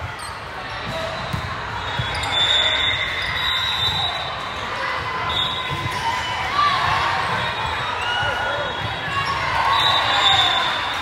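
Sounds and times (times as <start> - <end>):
sneaker squeaks: 0.0 - 4.6.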